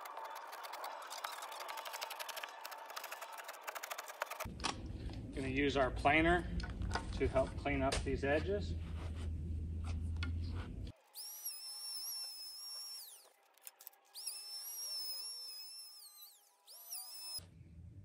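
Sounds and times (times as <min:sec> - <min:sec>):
electric hand planer whining: 0:00.0 - 0:04.5, 0:11.0 - 0:17.4.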